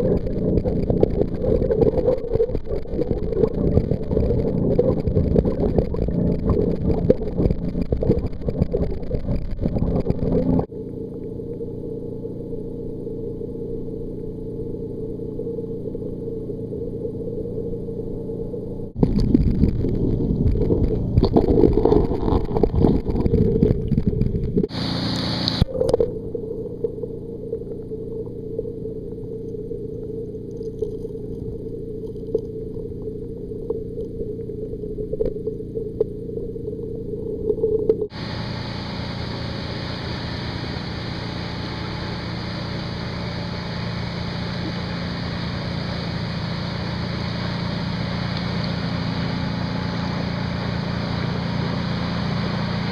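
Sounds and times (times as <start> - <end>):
muffled underwater noise: 0.0 - 52.9
rough rumble of water: 0.0 - 52.9
open-air hiss: 24.7 - 26.8, 38.1 - 52.9.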